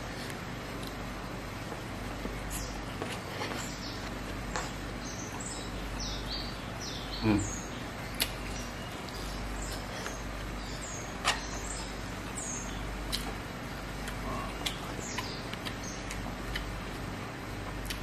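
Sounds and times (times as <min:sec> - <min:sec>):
small birds chirping: 0:00.0 - 0:18.0
chewing with wet lip-smacks: 0:08.0 - 0:10.6, 0:13.0 - 0:18.0.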